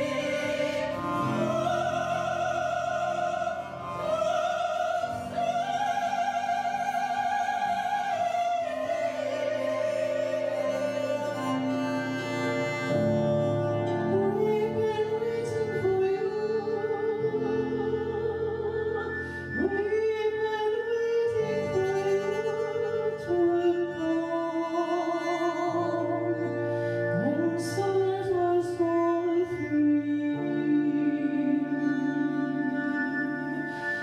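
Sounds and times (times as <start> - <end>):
woman singing operatically: 0.0 - 11.1
droning harp tones: 0.0 - 34.0.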